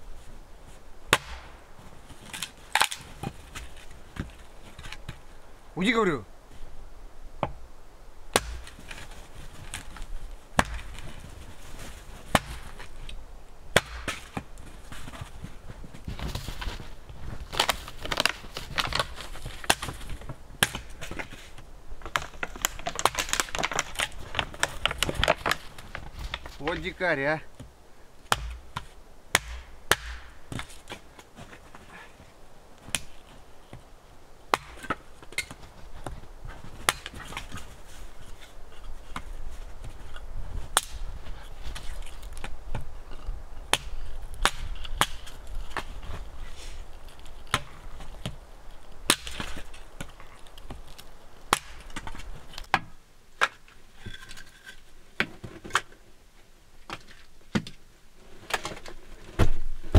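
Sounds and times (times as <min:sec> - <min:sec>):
hatchet chopping wood: 0:01.1 - 0:01.6, 0:08.3 - 0:09.0, 0:10.6 - 0:11.0, 0:12.3 - 0:12.8, 0:13.7 - 0:14.5, 0:20.6 - 0:21.1, 0:28.3 - 0:30.7, 0:34.5 - 0:35.5, 0:36.8 - 0:37.2, 0:43.7 - 0:45.9, 0:49.1 - 0:49.6, 0:51.5 - 0:52.1.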